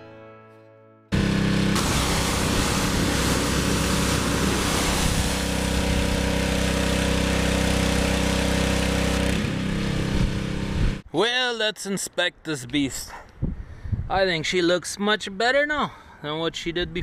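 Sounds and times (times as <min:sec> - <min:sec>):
pressure washer engine: 0:01.1 - 0:11.0
water jet spraying: 0:01.2 - 0:11.0.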